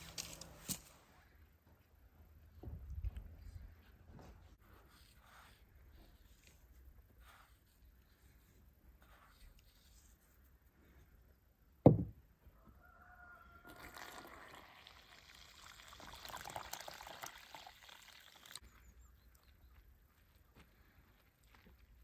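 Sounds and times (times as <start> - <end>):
loud thump: 11.8 - 12.2
liquid pouring into container: 13.7 - 18.6.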